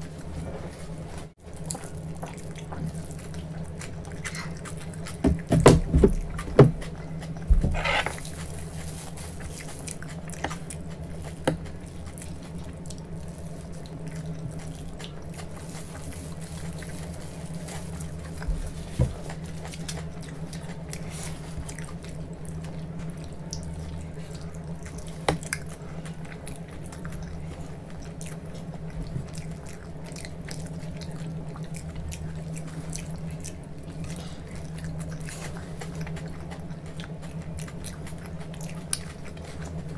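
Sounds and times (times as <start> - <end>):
person biting and chewing: 1.6 - 18.5.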